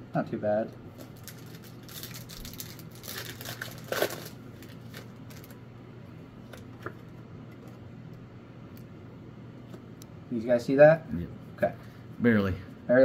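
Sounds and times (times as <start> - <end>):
foil wrapper crinkling: 0.9 - 5.6.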